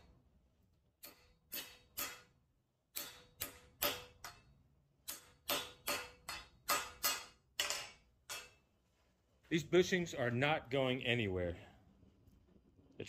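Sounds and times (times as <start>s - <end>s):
hammer tapping metal: 1.0s - 8.7s.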